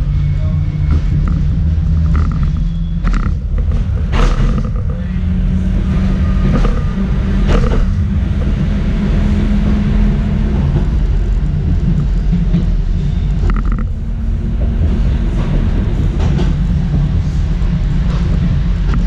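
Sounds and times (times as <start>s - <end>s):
running gear hum: 0.0s - 19.0s
tram rumbling on track: 0.0s - 19.0s
sharp knocks: 0.9s - 4.9s, 6.4s - 8.6s.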